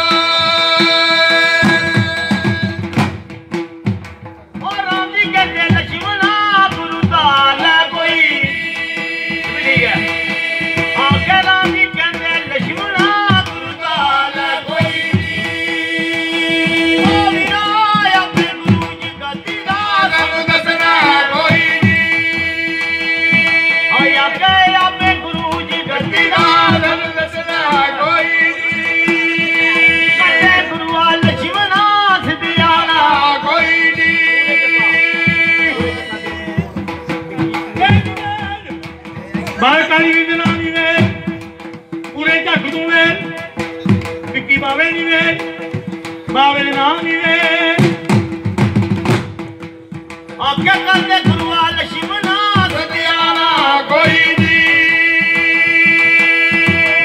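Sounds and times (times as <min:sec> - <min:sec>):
hand drums beat: 0:00.0 - 0:57.0
sustained melody: 0:14.4 - 0:24.6, 0:33.6 - 0:38.2
held drone note: 0:15.8 - 0:18.0.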